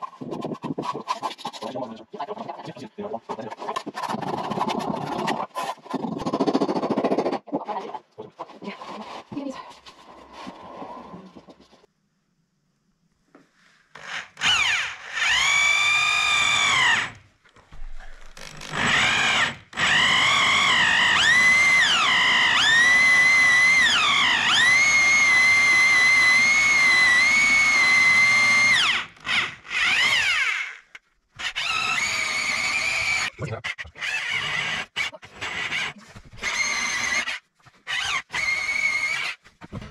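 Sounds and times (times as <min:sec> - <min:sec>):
electric drill motor whine: 0:14.0 - 0:17.2, 0:18.4 - 0:30.8, 0:31.4 - 0:33.3, 0:34.0 - 0:39.4.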